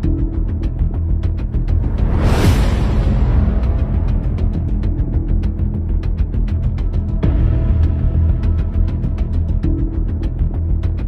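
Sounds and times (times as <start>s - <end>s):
dark dramatic background music: 0.0s - 11.0s.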